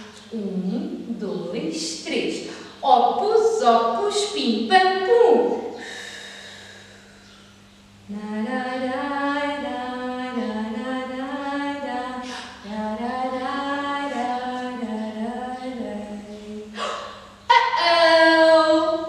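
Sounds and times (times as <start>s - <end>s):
woman singing unaccompanied: 8.0s - 19.0s.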